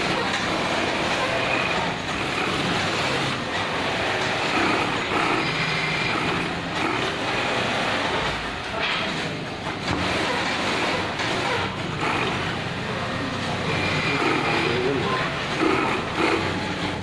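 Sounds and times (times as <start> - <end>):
industrial sewing machine stitching: 0.0 - 17.0
workshop noise: 0.0 - 17.0.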